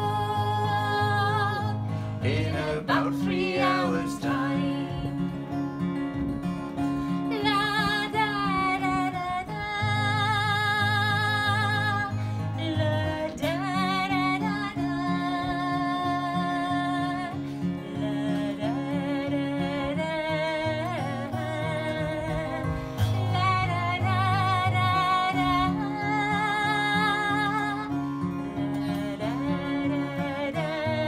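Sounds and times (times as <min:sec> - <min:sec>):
acoustic guitar strumming: 0:00.0 - 0:31.0.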